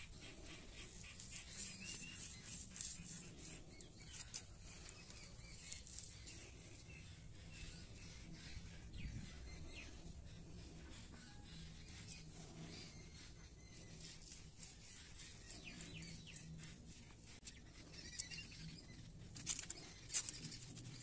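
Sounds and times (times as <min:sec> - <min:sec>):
faint bird chirps: 0:00.0 - 0:21.0
stem crackling and clicking: 0:19.3 - 0:21.0.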